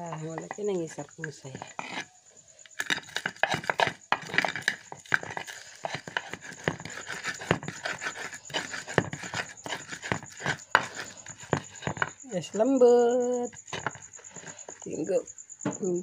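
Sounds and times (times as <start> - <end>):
stone pestle pounding in mortar: 2.8 - 12.1.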